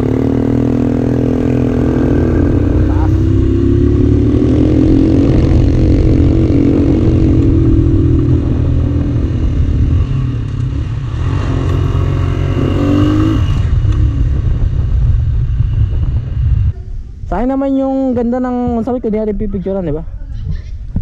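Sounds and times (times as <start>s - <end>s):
motorcycle engine running: 0.0s - 16.7s
wind rushing over microphone: 0.0s - 21.0s.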